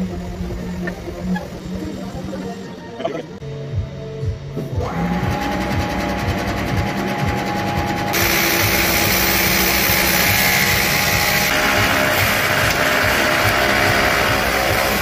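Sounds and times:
panel saw motor whine: 4.8 - 15.0
loud steady rushing noise: 6.8 - 15.0.

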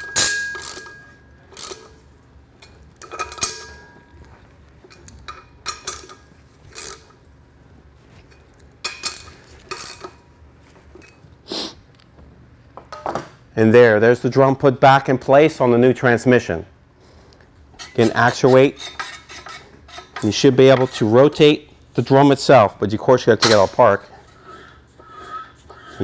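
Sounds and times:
wrench clicking on metal bolts: 0.0 - 2.0, 3.0 - 3.8, 5.0 - 7.1.

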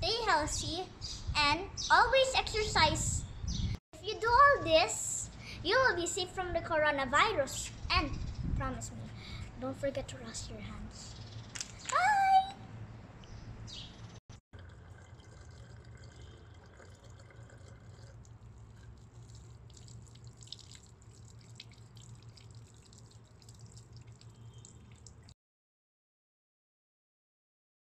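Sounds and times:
drips and splashes into basin: 14.6 - 25.4
tap water running onto hands: 18.9 - 25.3.

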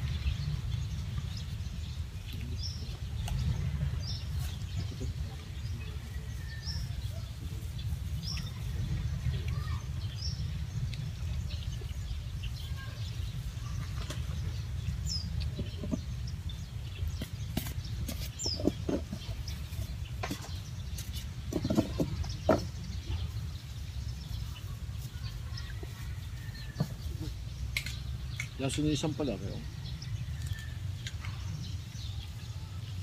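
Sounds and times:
bird chirps: 7.8 - 33.0.

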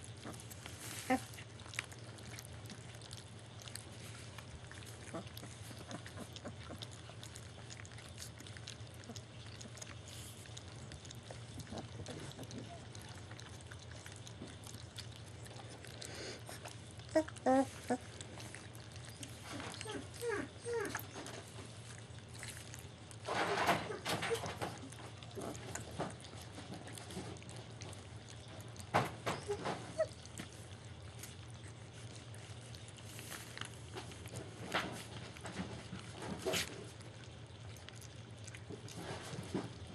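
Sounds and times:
puppies lapping wet food: 0.0 - 39.9
steady low hum: 0.0 - 39.9
puppy squeaks: 19.0 - 21.4, 29.3 - 30.2.

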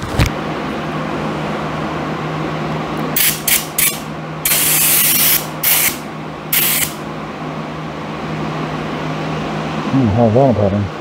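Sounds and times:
ventilation fan humming: 0.0 - 11.0
spray gun hissing: 3.2 - 7.0.

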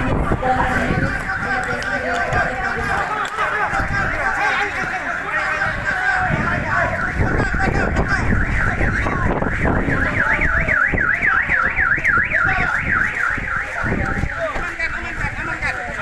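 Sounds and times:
wind rumble: 0.0 - 16.0
car alarm siren warbling: 2.4 - 14.4.

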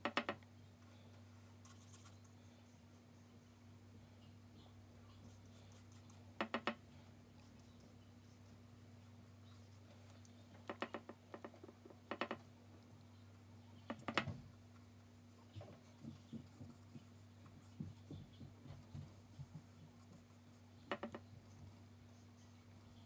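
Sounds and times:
paintbrush tapping on paper: 6.4 - 6.8, 15.9 - 19.8, 20.9 - 21.2.

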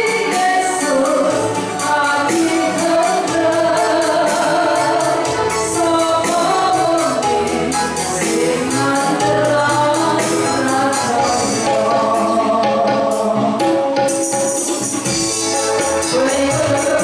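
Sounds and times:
woman singing into a microphone: 0.0 - 14.0, 15.8 - 17.0
backing music with percussion and bass: 0.0 - 17.0.

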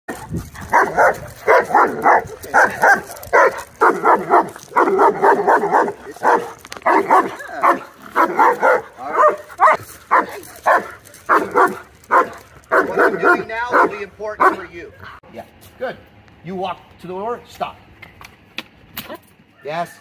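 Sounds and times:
dog barking hard and fast: 0.1 - 14.7.

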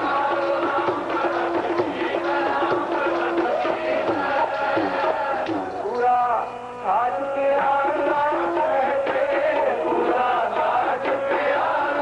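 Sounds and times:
voices chanting: 0.0 - 6.0
tabla beat: 0.0 - 6.3, 7.2 - 12.0.

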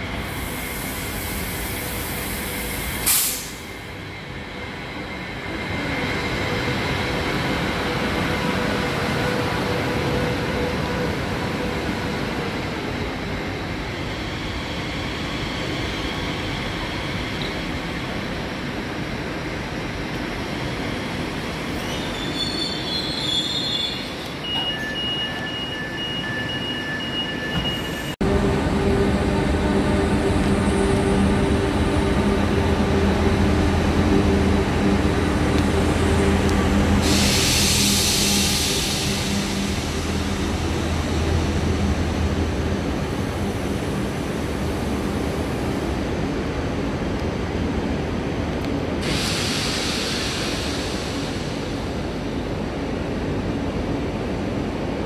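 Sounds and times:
squealing wheels and brakes: 21.7 - 28.2.

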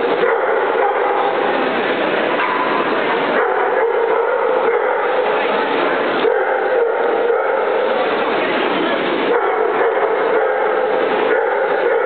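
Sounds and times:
dogs barking and yipping: 0.0 - 1.7, 2.4 - 8.1, 9.2 - 12.0
dense background din: 0.0 - 12.0.

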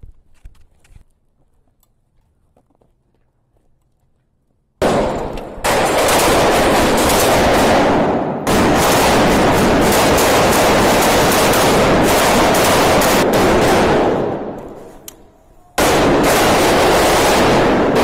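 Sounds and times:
automatic rifle fire: 4.8 - 15.0, 15.8 - 18.0.

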